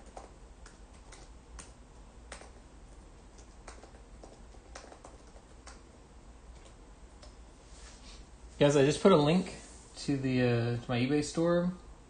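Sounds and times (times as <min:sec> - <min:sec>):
keyboard keystroke clicks: 0:03.4 - 0:05.8.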